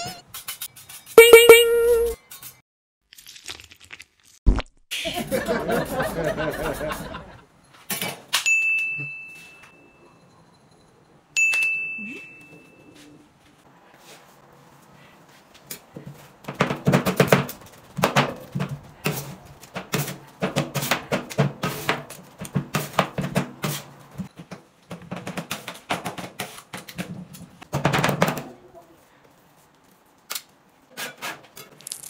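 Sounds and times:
music with percussive beat: 1.2 - 2.2.

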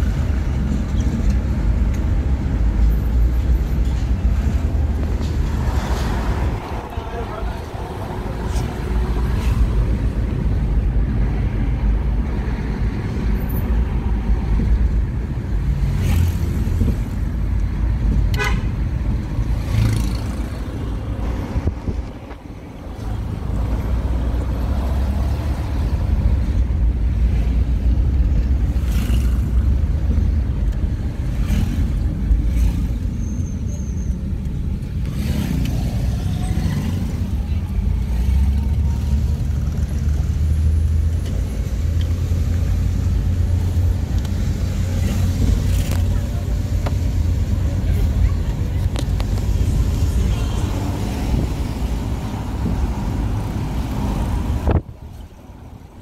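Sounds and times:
car road and engine rumble: 0.0 - 56.0
car horn toot: 18.3 - 18.8.

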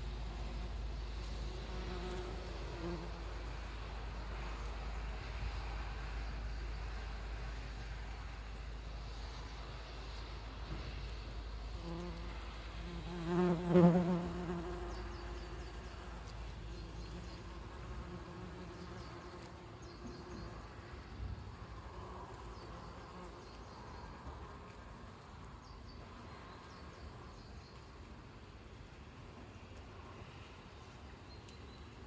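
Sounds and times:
wasp flying close by: 0.1 - 5.5, 11.0 - 21.0.

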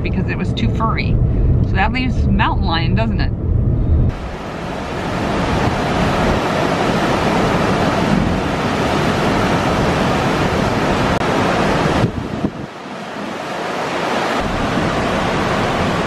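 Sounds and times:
water rushing over boulders: 4.1 - 16.0.

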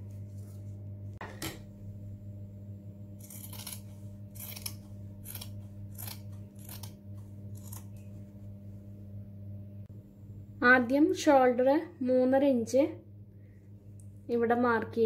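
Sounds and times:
steady low hum: 0.0 - 15.0
scissors snipping fabric: 3.2 - 8.1.

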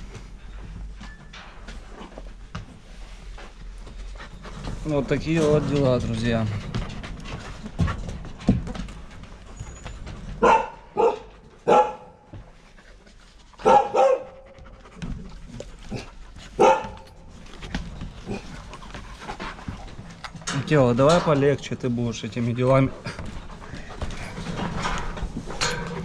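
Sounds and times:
dog barking: 10.4 - 12.2, 13.6 - 14.4, 16.6 - 17.1.

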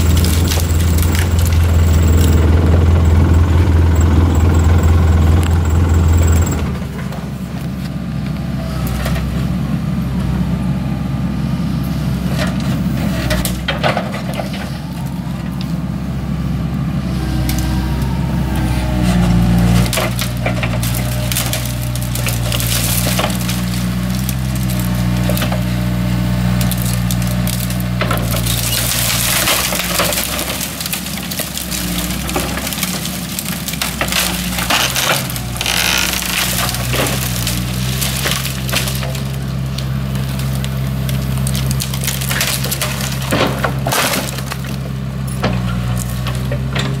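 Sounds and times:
tree branches cracking and snapping: 0.0 - 2.4, 19.7 - 45.2
diesel engine running: 0.0 - 47.0.

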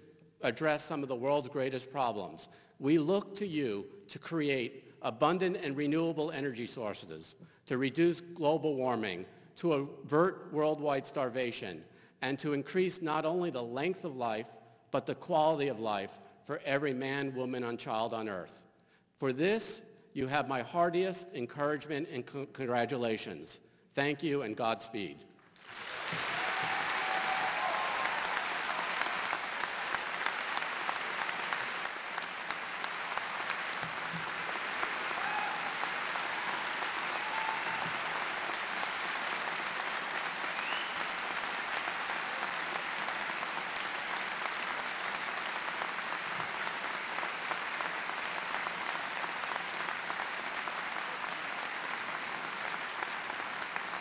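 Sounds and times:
audience applauding: 25.6 - 54.0
brief cheers: 25.9 - 29.2, 35.0 - 38.2.

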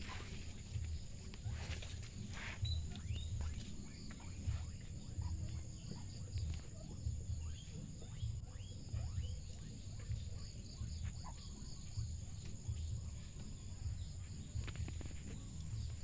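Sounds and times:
low rumbling on microphone: 0.0 - 16.0.

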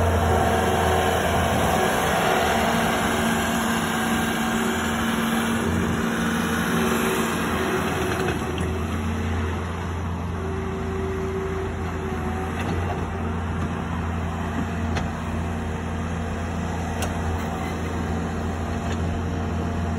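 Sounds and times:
diesel engine running: 0.0 - 19.9.

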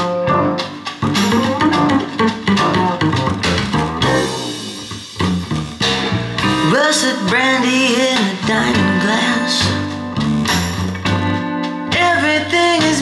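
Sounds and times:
song with plucked guitar and bass: 0.0 - 13.0
person singing: 6.6 - 10.4, 11.8 - 13.0.

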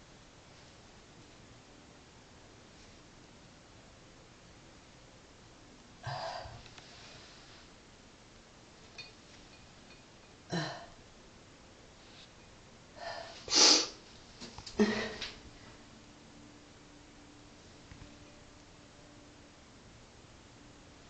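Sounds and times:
cat sneezing: 13.4 - 14.0.

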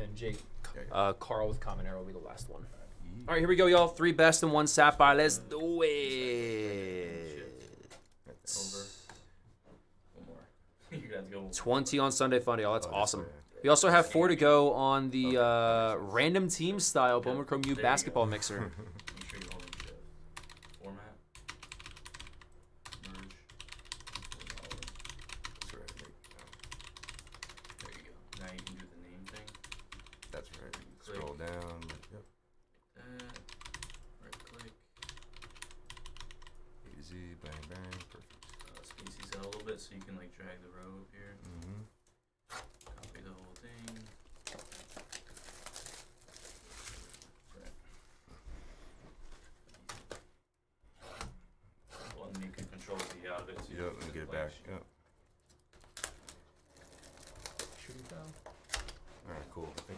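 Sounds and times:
wrapper crinkling and rustling: 43.5 - 47.7, 55.3 - 59.9.

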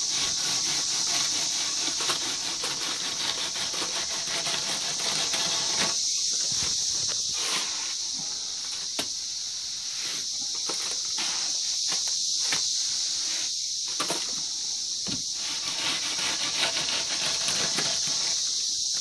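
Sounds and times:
wooden float scraping wet mud: 0.0 - 8.1, 15.3 - 18.5
high-pitched insect chorus: 0.0 - 19.0.

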